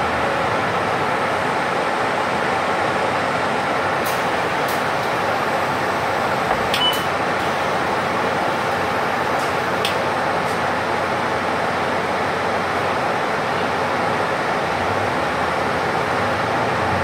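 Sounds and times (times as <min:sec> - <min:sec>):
bus engine and air conditioning: 0:00.0 - 0:17.0
brief high beep: 0:06.7 - 0:07.1.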